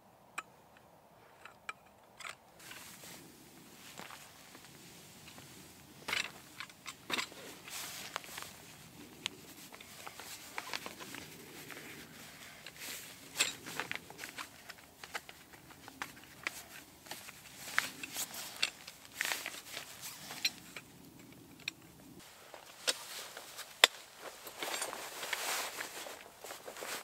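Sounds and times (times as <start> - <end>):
fabric rustling: 2.6 - 20.7, 22.2 - 27.0
metal poles clicking and knocking: 5.3 - 8.6.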